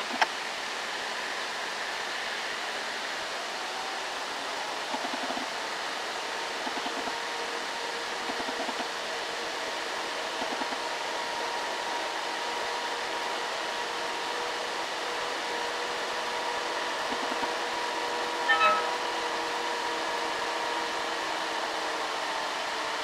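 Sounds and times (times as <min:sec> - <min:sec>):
loud tone: 0:18.5 - 0:19.2.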